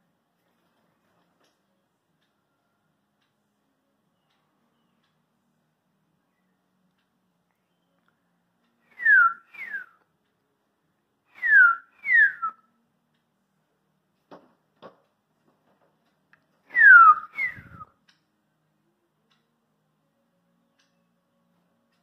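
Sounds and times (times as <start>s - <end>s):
person whistling bird song: 7.5s - 8.2s, 8.8s - 10.0s, 11.3s - 12.7s, 16.7s - 18.0s.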